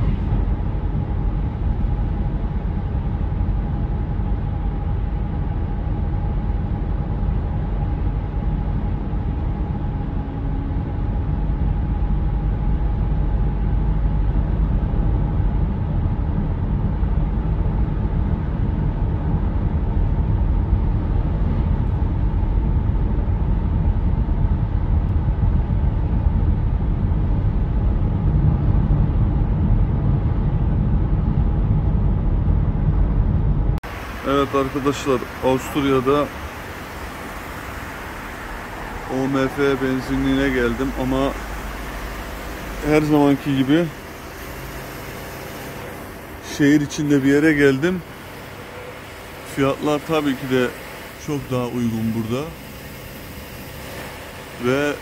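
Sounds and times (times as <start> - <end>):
car cabin road and engine noise: 0.0 - 55.0
faint steady whine: 0.0 - 55.0.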